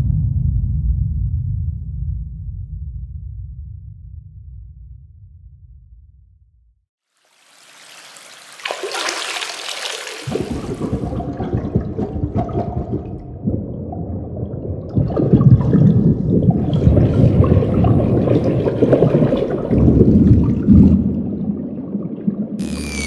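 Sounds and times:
rushing gurgling water: 7.1s - 13.2s, 14.2s - 21.3s
falling whistle-like tone: 22.6s - 23.0s.

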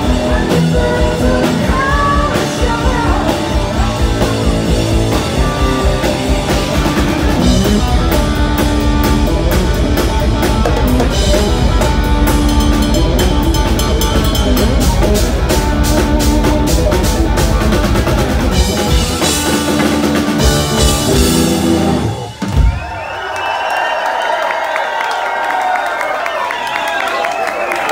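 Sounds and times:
live rock band playing: 0.0s - 22.9s
rapid drum strikes: 6.0s - 22.8s.

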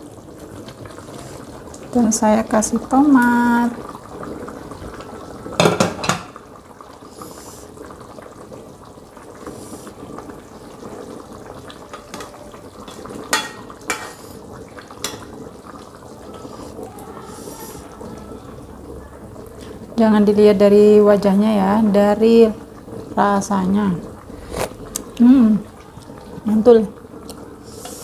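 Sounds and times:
sauce bubbling in a wok: 0.0s - 28.0s
metal ladle clinking on pan: 13.3s - 14.1s.

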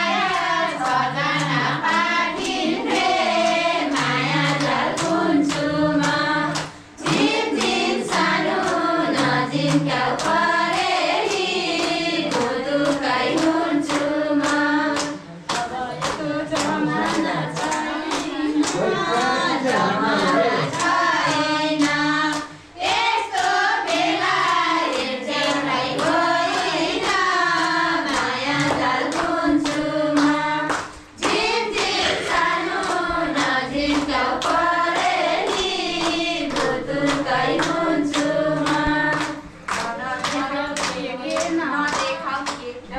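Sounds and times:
hands clapping steady beat: 0.0s - 42.9s
women singing together: 0.0s - 42.9s.

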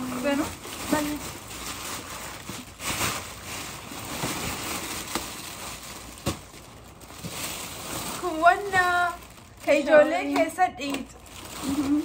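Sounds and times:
paper crinkling and rustling: 0.0s - 12.0s.

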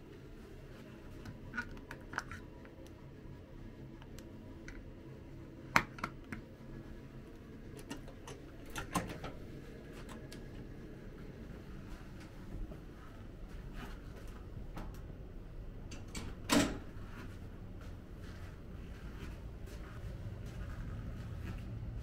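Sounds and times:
low room hum: 0.0s - 22.0s
light handling clicks and knocks: 7.7s - 9.4s
door unlatched and opened: 7.9s - 9.4s, 15.9s - 16.9s.

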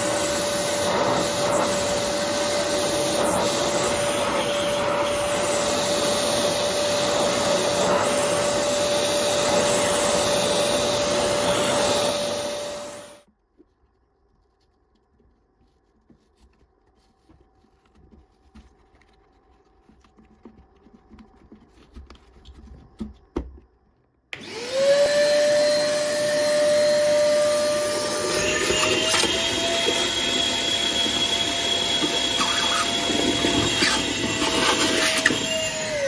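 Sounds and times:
vacuum cleaner motor whine: 0.0s - 13.3s, 24.3s - 36.0s.

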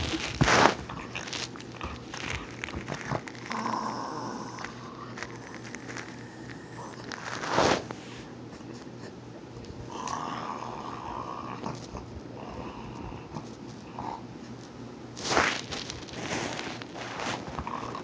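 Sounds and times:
dog snarling: 0.0s - 5.7s, 16.2s - 18.0s
dog growling: 0.0s - 7.8s, 9.8s - 14.6s, 16.1s - 18.0s.

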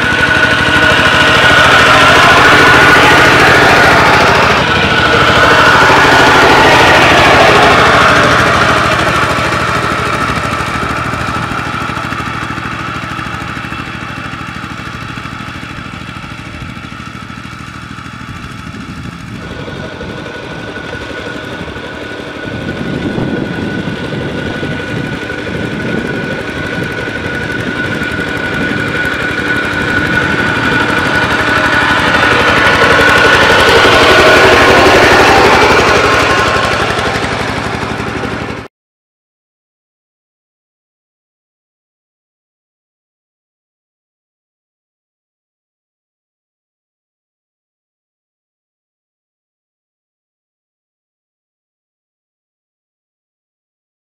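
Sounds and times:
walking tractor engine running: 0.0s - 38.7s.

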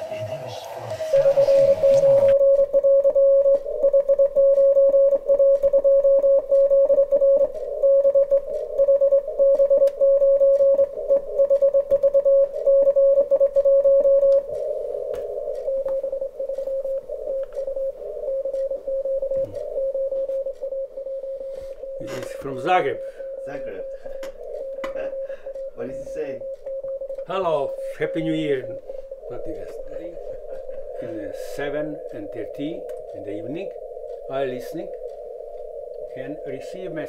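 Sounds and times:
morse code beeping tone: 1.1s - 14.6s.

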